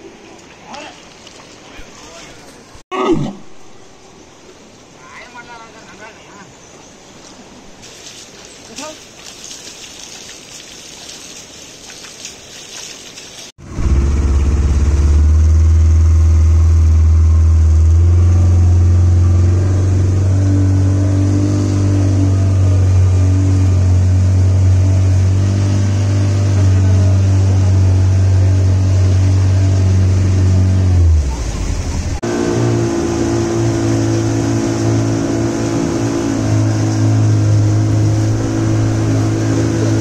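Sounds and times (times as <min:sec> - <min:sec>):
river water splashing: 0:00.0 - 0:02.8, 0:03.4 - 0:40.0
motorboat engine running: 0:13.6 - 0:40.0.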